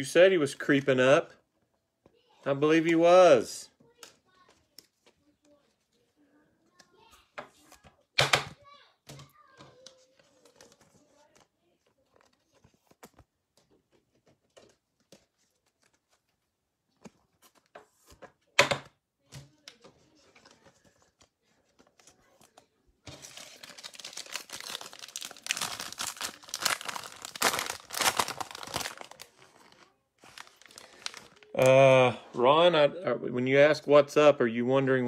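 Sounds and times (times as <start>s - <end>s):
foil wrapper crinkling and tearing: 23.1s - 31.7s.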